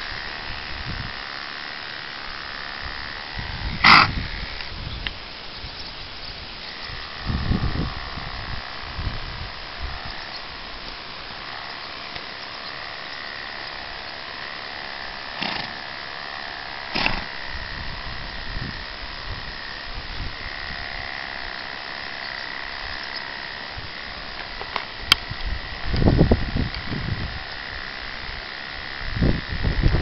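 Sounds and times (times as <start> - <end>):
electric clippers buzzing: 0.0 - 30.0.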